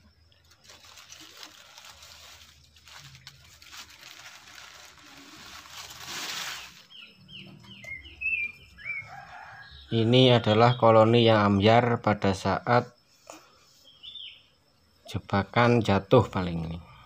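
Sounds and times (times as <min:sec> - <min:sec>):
gloved hand rubbing bark: 0:00.9 - 0:06.9
bird chirping: 0:06.5 - 0:12.3, 0:13.0 - 0:15.9.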